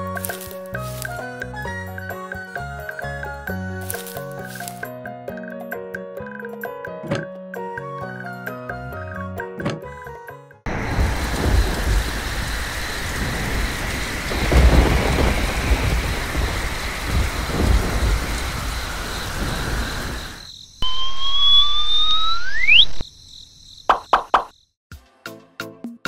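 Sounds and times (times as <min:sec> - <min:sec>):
rumbling thunder: 0:10.7 - 0:20.5
steady rain downpour: 0:10.7 - 0:20.5
rising whistle-like tone: 0:20.3 - 0:23.0.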